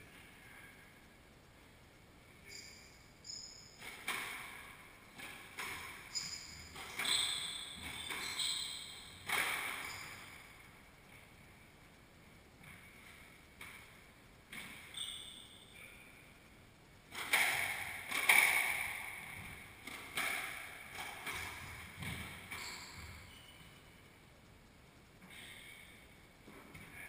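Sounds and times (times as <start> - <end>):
shoes squeaking on wooden floor: 6.0 - 10.2, 21.4 - 23.8
squash ball smacks: 9.2 - 9.8.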